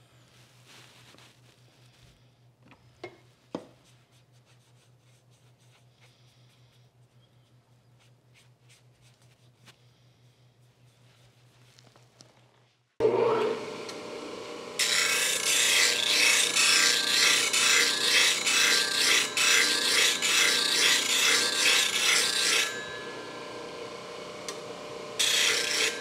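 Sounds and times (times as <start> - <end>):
bench grinder motor hum: 13.0 - 26.0
steel grinding on wheel: 14.8 - 23.6.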